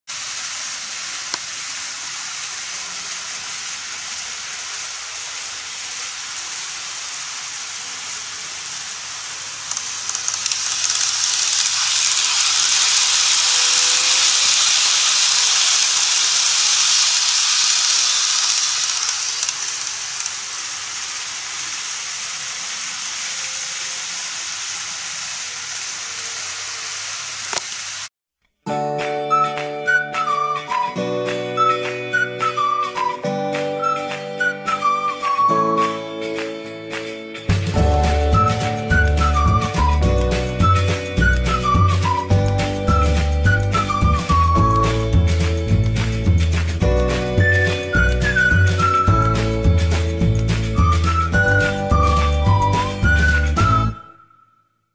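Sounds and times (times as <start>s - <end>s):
model train rumbling on track: 9.4s - 27.7s.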